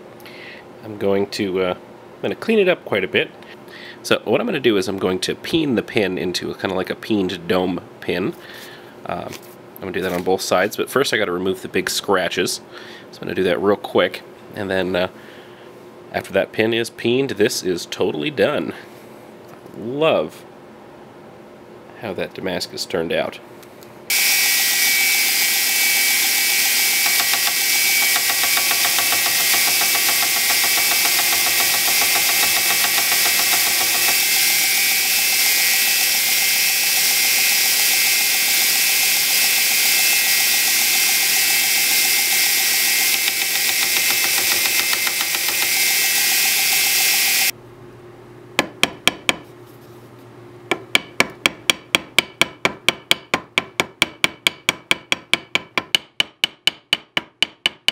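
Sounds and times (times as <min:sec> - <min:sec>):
belt grinder sanding: 0:24.1 - 0:47.5
hammer tapping metal pin: 0:27.0 - 0:34.2, 0:43.1 - 0:45.8, 0:48.6 - 0:49.4, 0:50.7 - 0:57.9.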